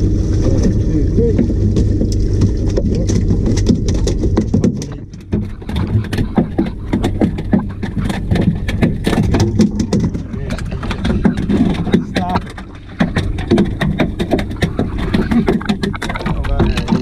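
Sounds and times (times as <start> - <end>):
outboard motor humming: 0.0 - 17.0
sharp knocks and taps: 1.4 - 17.0.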